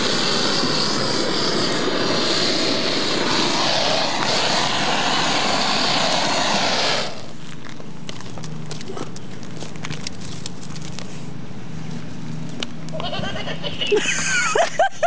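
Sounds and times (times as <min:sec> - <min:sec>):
blowtorch hissing: 0:00.0 - 0:07.5.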